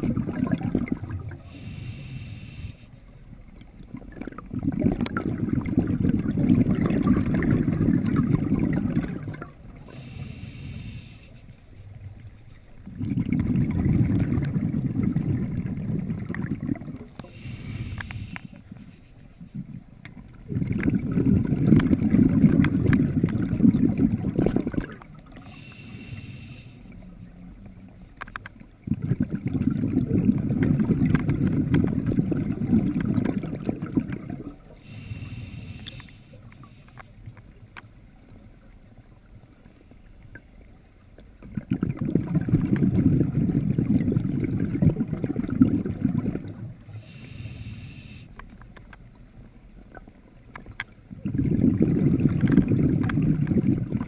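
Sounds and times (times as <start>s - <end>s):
rush of exhaled bubbles: 0.0s - 2.0s, 3.8s - 11.0s, 12.8s - 18.6s, 19.5s - 26.2s, 28.8s - 36.1s, 41.4s - 48.1s, 51.1s - 54.0s
hissing regulator inhalations: 1.4s - 3.0s, 9.8s - 11.7s, 17.2s - 19.2s, 25.4s - 27.0s, 34.8s - 37.2s, 46.9s - 48.4s.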